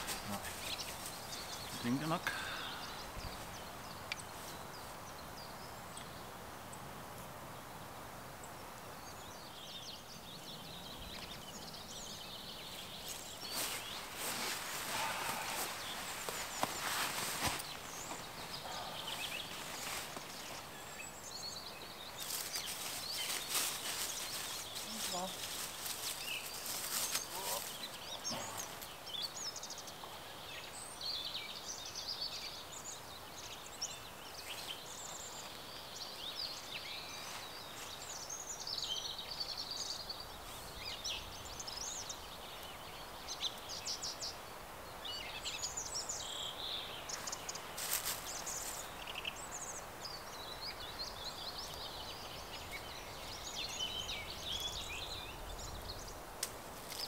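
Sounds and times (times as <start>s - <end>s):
background hiss: 0.0s - 57.0s
songbirds singing: 0.0s - 57.0s.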